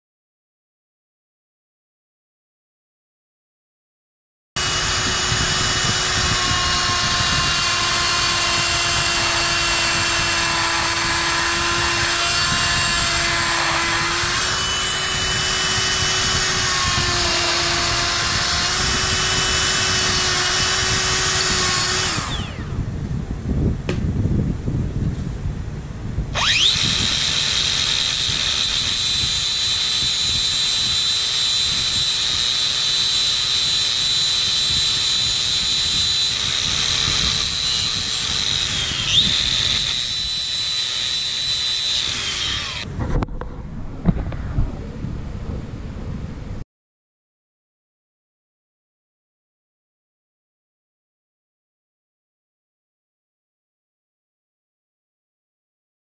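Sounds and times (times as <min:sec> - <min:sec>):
angle grinder grinding pipe: 0:04.6 - 0:22.8, 0:26.4 - 0:42.9
die grinder whining on steel pipe: 0:04.6 - 0:22.8, 0:26.3 - 0:42.9.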